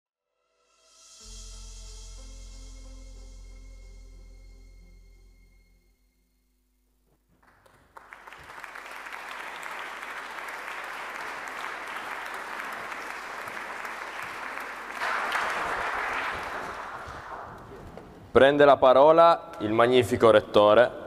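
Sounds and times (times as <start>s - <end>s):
audience applauding: 7.4s - 17.9s.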